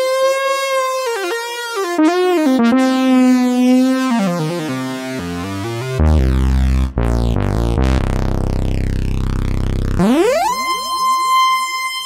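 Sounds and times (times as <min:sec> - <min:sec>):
deep synthesizer bass notes: 0:05.3 - 0:11.4
synthesizer held note stepping down: 0:06.0 - 0:11.6.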